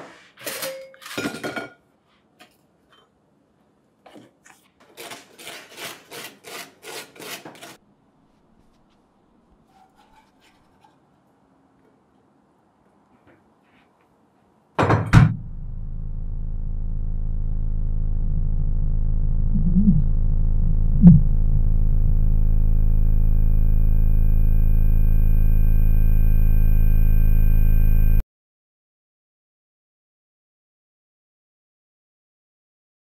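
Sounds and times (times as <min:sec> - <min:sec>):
sudden loud hit: 0:15.1 - 0:25.4
low drone of layered tones: 0:15.4 - 0:28.2.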